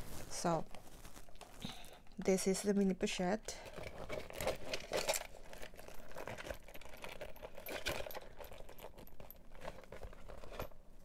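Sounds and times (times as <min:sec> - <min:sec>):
clicks and rustles of pouches: 0:00.0 - 0:02.9, 0:03.5 - 0:11.0.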